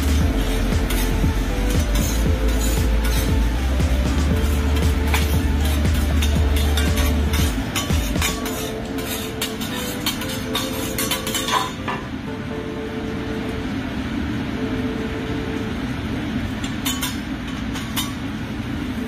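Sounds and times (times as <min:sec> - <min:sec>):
metal spatulas clinking on griddle: 0:04.7 - 0:12.1, 0:16.6 - 0:18.3.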